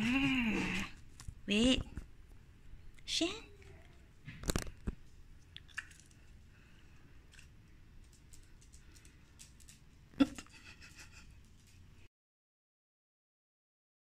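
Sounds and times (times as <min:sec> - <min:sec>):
dog claws clicking on tiles: 0:07.3 - 0:11.8.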